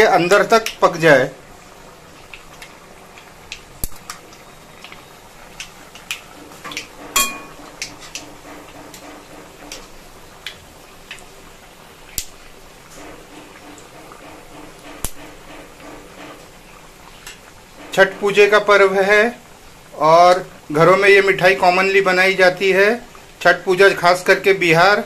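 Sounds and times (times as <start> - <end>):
dough frying in hot oil: 0.0 - 25.0
metal spoon clinking on pan: 7.2 - 7.6.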